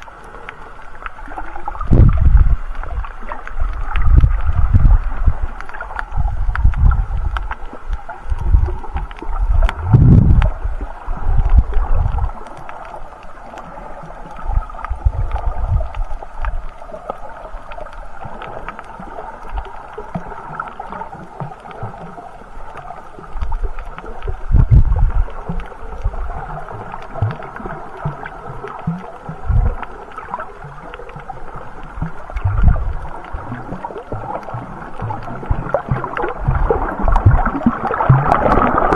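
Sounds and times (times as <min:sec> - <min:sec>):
muffled underwater water wash: 0:00.0 - 0:38.9
low thumps and sloshes: 0:01.5 - 0:12.6, 0:14.4 - 0:16.7, 0:23.4 - 0:38.9.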